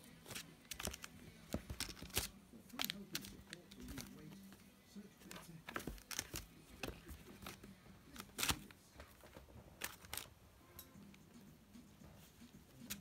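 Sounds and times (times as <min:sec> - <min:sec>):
newspaper crinkling and rustling: 0:00.1 - 0:04.6, 0:05.2 - 0:10.3.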